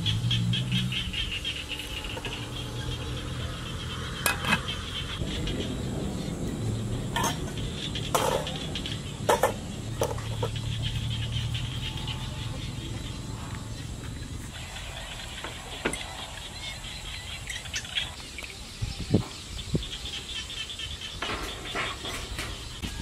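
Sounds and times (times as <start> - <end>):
low steady rumble: 0.0 - 15.2.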